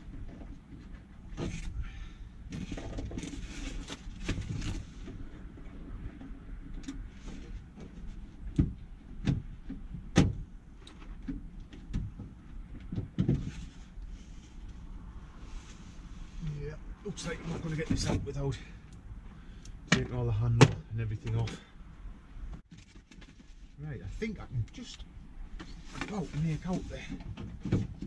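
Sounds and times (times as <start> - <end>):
rustling: 2.5 - 8.5, 10.8 - 18.3.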